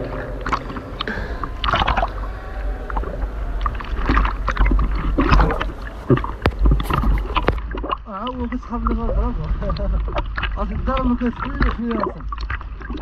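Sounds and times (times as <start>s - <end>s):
steady low rumble: 0.0s - 10.1s
water sloshing and splashing: 0.0s - 13.0s.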